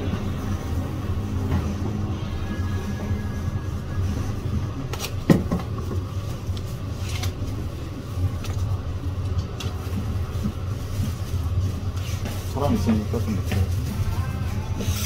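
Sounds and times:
steady low rumble: 0:00.0 - 0:14.8.

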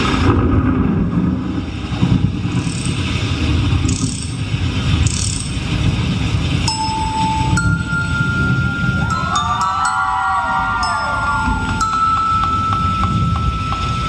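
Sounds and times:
loud low rumbling: 0:00.0 - 0:14.0
bell-like chime: 0:06.7 - 0:14.0
high shimmering swells: 0:06.7 - 0:14.0.

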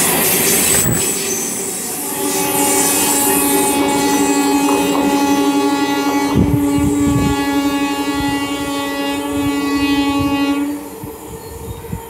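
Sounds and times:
train horn long note: 0:02.0 - 0:11.6.

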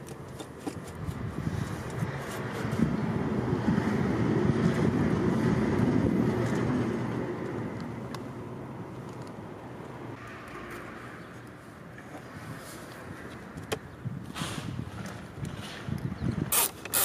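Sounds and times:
passing vehicle rumble: 0:01.2 - 0:13.6.

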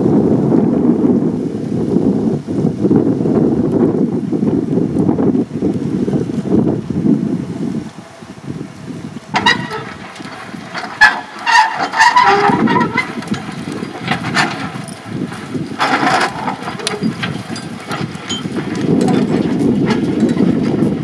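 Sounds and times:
roller low rumble: 0:00.0 - 0:21.0
metallic clattering and chains rattling: 0:09.4 - 0:21.0.

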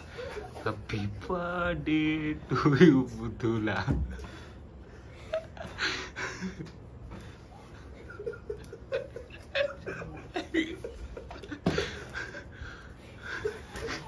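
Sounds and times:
people laughing: 0:05.1 - 0:14.0.

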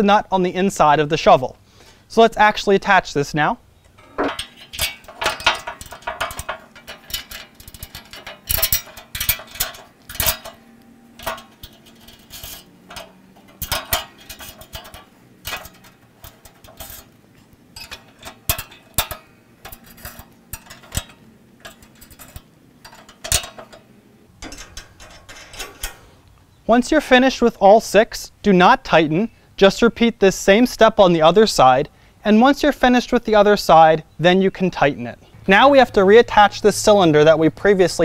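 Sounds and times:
metal bolts clinking and scraping: 0:03.8 - 0:26.6.

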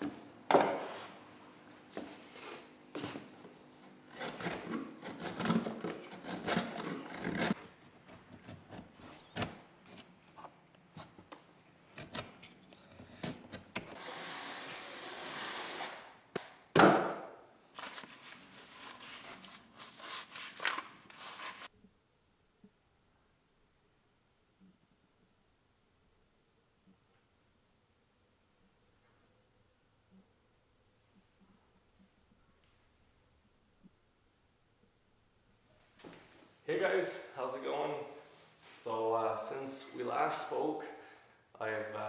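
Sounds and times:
scraping and rubbing on wood: 0:02.4 - 0:11.2, 0:17.8 - 0:21.7.

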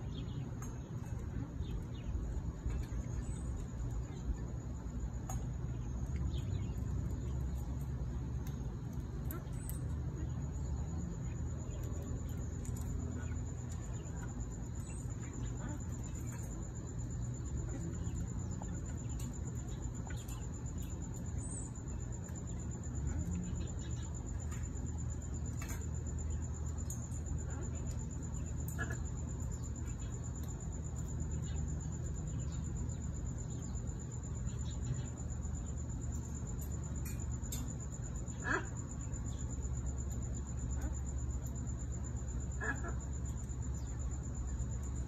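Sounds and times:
low steady rumble: 0:00.0 - 0:45.0
high-pitched insect trill: 0:01.5 - 0:45.0.

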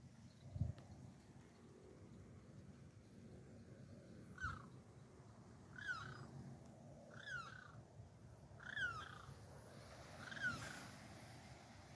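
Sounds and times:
animal calling: 0:05.8 - 0:06.3, 0:08.6 - 0:09.4, 0:10.2 - 0:10.9.

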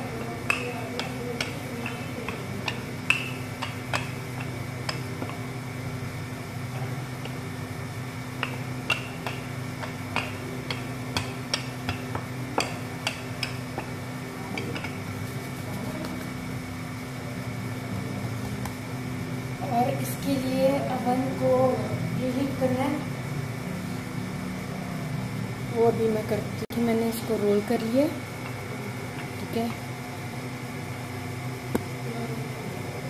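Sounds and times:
hands rolling dough: 0:00.0 - 0:16.6
steady low hum: 0:00.0 - 0:33.0.

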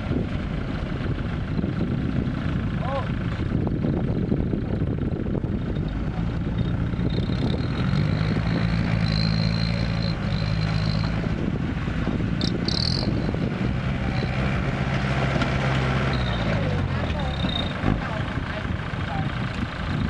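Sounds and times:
diesel truck engine: 0:00.0 - 0:20.0
tractor engine running: 0:00.0 - 0:20.0.

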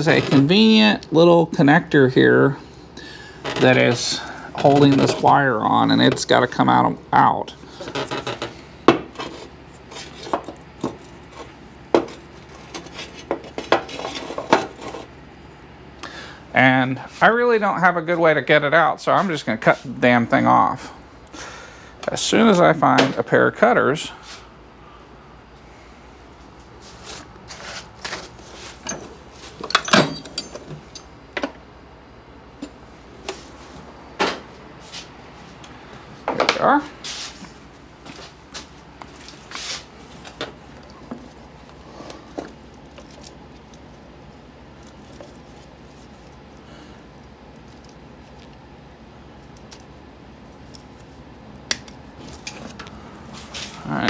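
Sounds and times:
hand tools clicking and knocking: 0:28.8 - 0:31.6.

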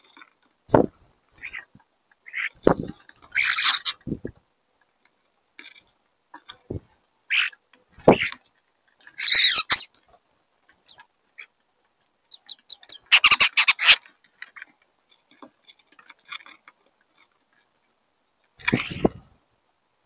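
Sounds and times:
starlings chattering calls: 0:09.2 - 0:09.9, 0:12.3 - 0:14.0.

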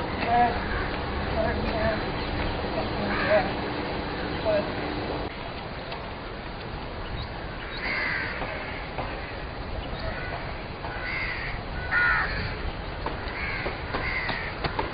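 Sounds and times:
crows cawing: 0:00.0 - 0:01.5, 0:02.8 - 0:04.7, 0:07.4 - 0:14.9
outdoor background noise: 0:00.0 - 0:14.9.

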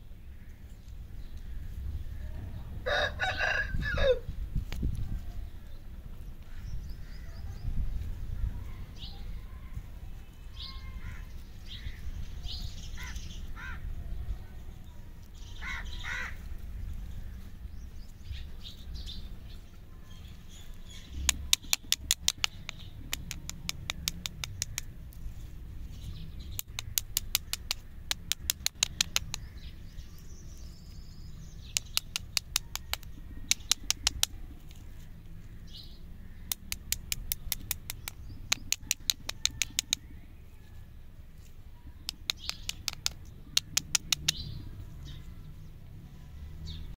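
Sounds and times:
low background rumble: 0:00.0 - 0:46.9
rapid sharp bird chips: 0:20.9 - 0:35.1, 0:36.2 - 0:40.4, 0:41.9 - 0:44.8
high bird chirps: 0:25.8 - 0:34.5, 0:41.8 - 0:45.3.

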